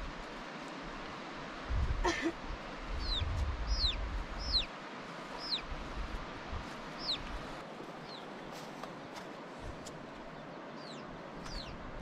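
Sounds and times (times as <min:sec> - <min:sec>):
chicks peeping: 0:03.0 - 0:04.7, 0:07.0 - 0:07.2.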